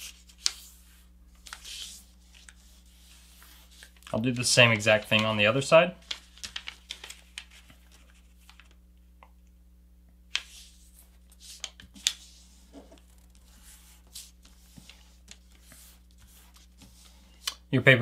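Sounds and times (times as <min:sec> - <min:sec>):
paper rustling: 0:00.0 - 0:08.8, 0:10.4 - 0:17.6
sharp swipes on paper crease: 0:10.4 - 0:17.6.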